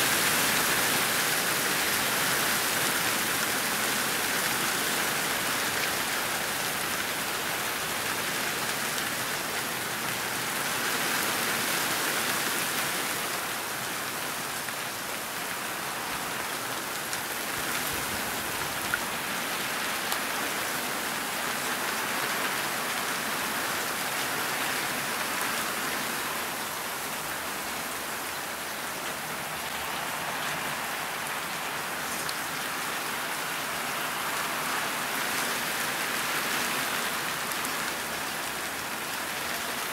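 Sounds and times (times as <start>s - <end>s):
steady rain hiss: 0.0s - 39.9s.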